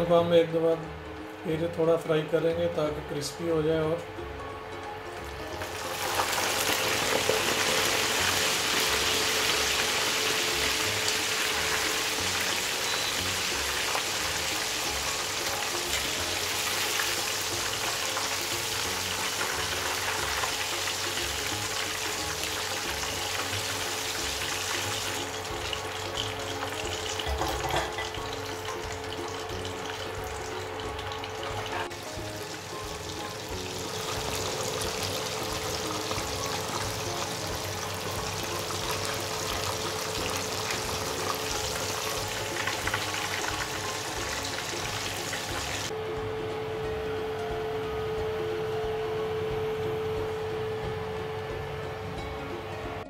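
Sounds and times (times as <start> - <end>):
chicken sizzling in hot oil: 5.2 - 45.9.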